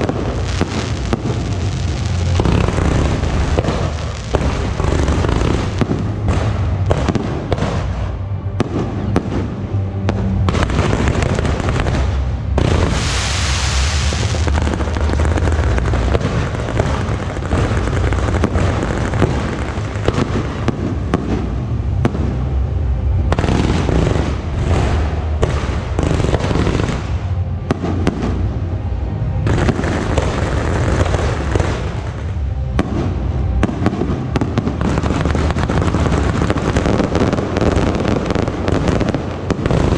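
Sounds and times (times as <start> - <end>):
fireworks bangs and crackles: 0.0 - 39.9
sharp firework hiss: 10.6 - 21.2.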